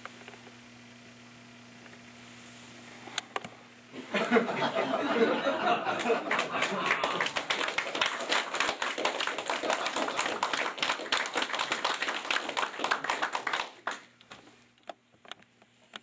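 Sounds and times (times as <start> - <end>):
audience applauding: 5.2 - 14.1.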